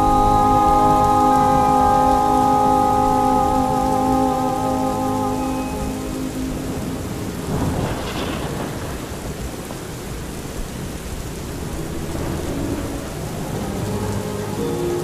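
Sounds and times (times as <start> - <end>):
steady rain hiss: 0.0 - 15.0
thunder rolling: 6.4 - 14.4.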